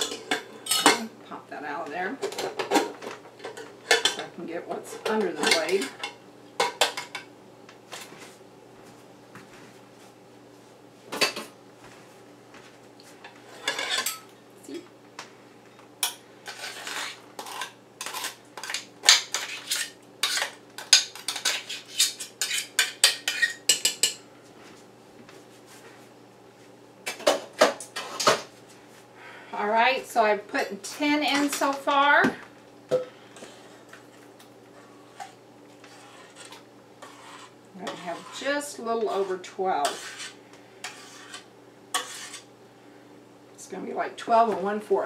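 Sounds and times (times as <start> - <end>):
metal spoon scraping a food mill: 16.4 - 24.1, 34.8 - 42.5.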